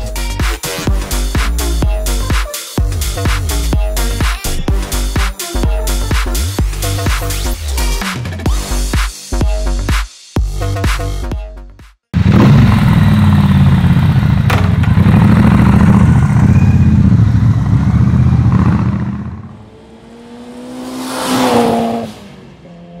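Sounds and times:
motorcycle engine revving: 12.2 - 23.0.

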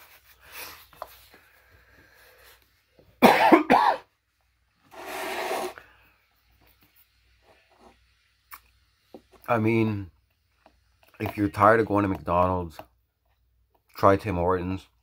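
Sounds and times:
man coughing: 3.2 - 4.1.

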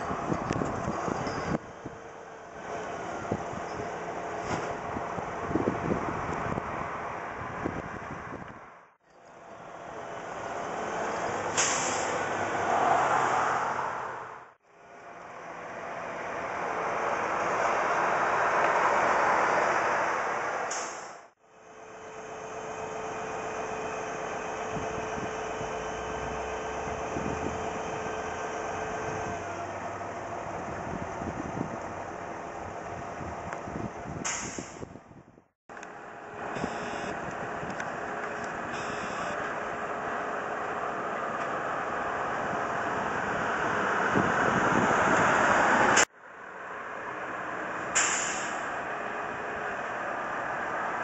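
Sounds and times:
truck engine running: 21.4 - 34.2, 35.7 - 44.8
thin steady whine: 36.5 - 37.3, 38.7 - 39.4.

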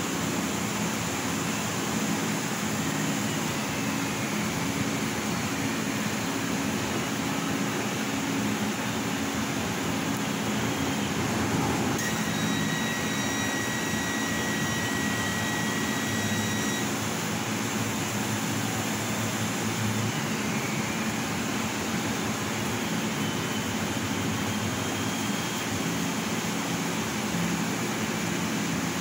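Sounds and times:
high multi-tone whine: 0.0 - 28.8
laser cutting machine running: 0.0 - 29.0.

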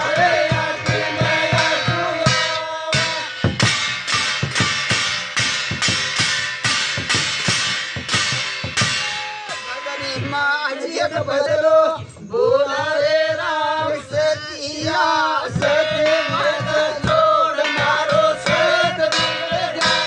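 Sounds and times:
men singing folk chant: 0.0 - 3.7, 9.6 - 20.0
steel plates struck by hand: 0.0 - 10.5, 15.5 - 20.0.

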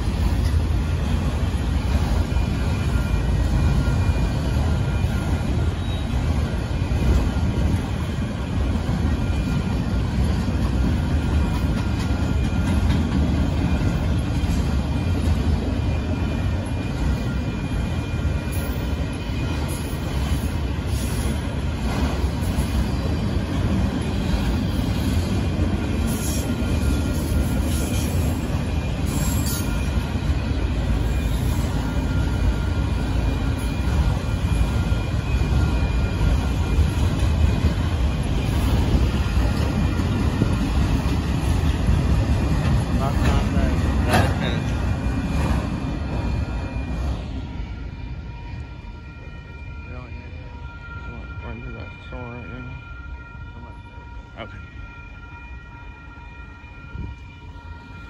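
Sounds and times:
train wheels rumbling on rails: 0.0 - 58.0
high wheel squeals: 24.0 - 40.6.

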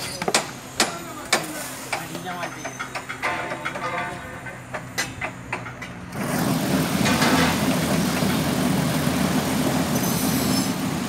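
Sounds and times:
concrete mixer churning: 6.1 - 11.0.

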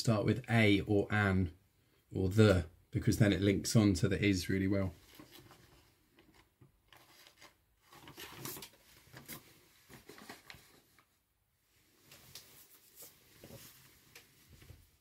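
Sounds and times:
papers rustling: 4.9 - 11.2.

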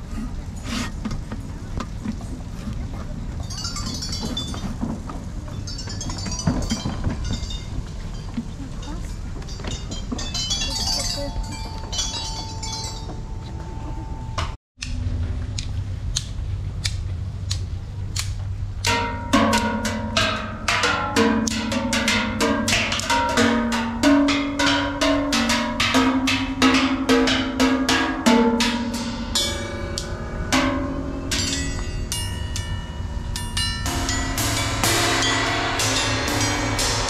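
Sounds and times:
steel barrels played as drums: 18.8 - 37.0.

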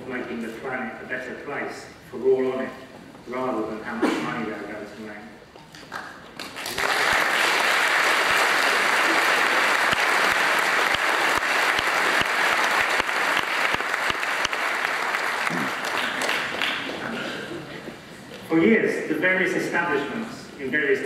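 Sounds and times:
audience applauding: 5.9 - 17.2.

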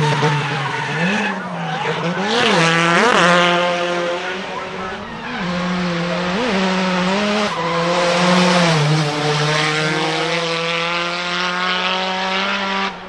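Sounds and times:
tyres squealing: 0.0 - 10.2
car engine at high revs: 0.0 - 13.0.

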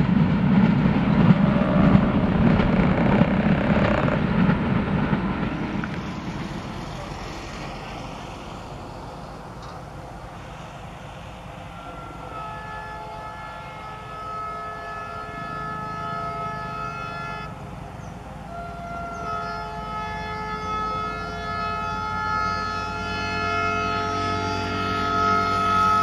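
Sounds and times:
low engine rumble: 0.0 - 26.0
locomotive air horn blasts: 11.6 - 17.6, 18.4 - 26.0.

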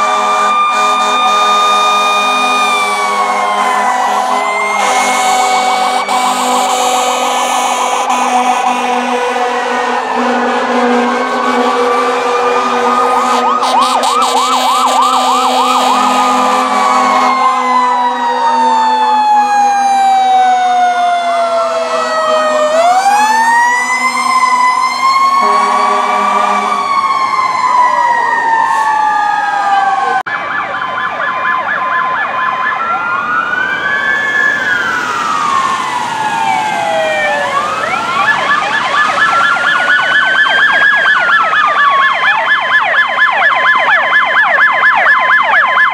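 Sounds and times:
low blaring horn tone: 0.0 - 19.2, 21.7 - 27.1
high-low two-tone siren: 0.0 - 45.9
wailing siren: 0.0 - 45.9
yelping sirens: 0.0 - 45.9.

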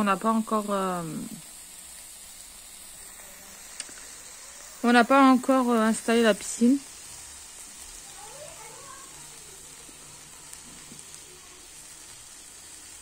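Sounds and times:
sausages sizzling on a grill: 0.0 - 13.0.

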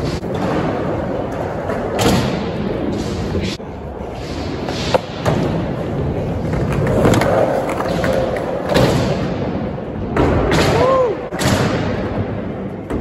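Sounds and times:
skateboard rolling on concrete: 2.7 - 8.6.

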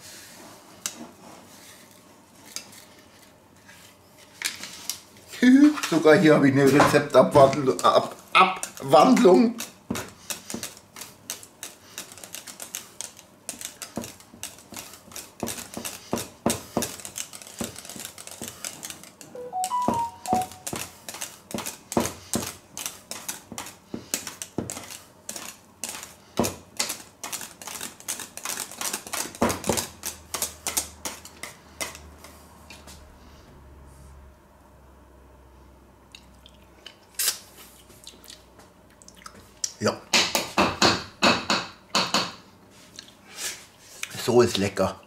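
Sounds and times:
short high tones: 19.4 - 20.7.

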